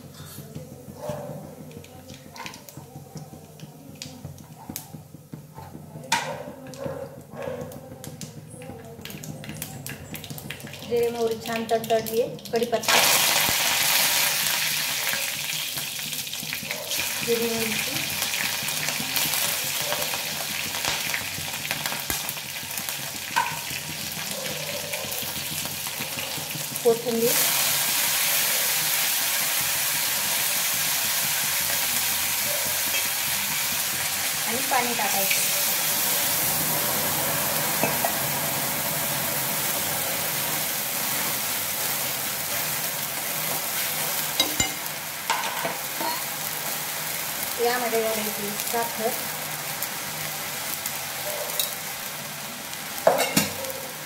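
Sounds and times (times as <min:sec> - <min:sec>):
spoon knocking against pan: 0:00.5 - 0:08.8, 0:23.2 - 0:26.7, 0:44.4 - 0:46.3
seeds sizzling in hot oil: 0:01.4 - 0:54.0.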